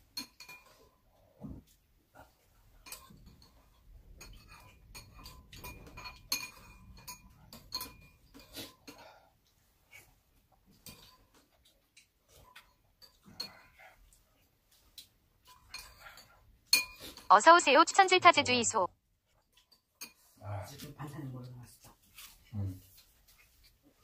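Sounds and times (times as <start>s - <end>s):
cutlery clinking on ceramic bowls: 0.0s - 1.0s, 2.6s - 9.2s, 10.7s - 14.2s, 14.8s - 17.3s, 19.5s - 20.4s.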